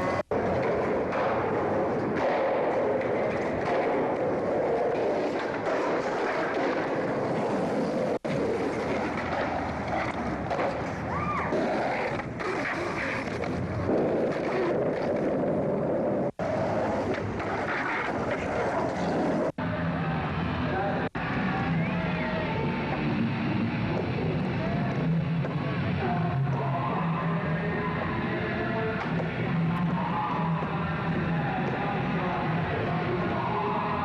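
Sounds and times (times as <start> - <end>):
skateboard wheels rolling on concrete: 0.0 - 34.0.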